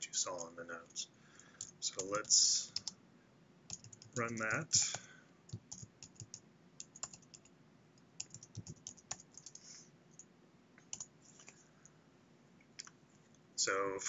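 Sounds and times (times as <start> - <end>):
keyboard typing: 1.4 - 3.0, 3.7 - 7.5, 8.2 - 9.7, 10.8 - 11.6.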